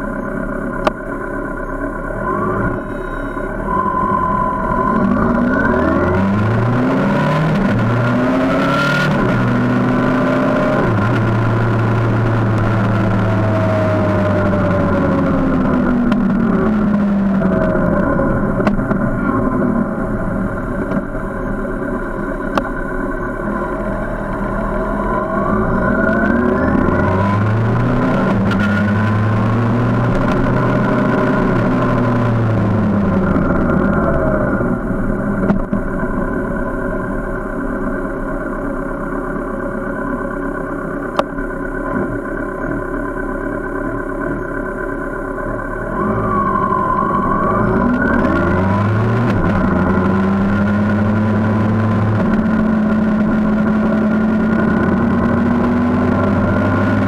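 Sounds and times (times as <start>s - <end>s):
motorcycle engine slowing: 0.0s - 57.0s
road noise: 0.0s - 57.0s.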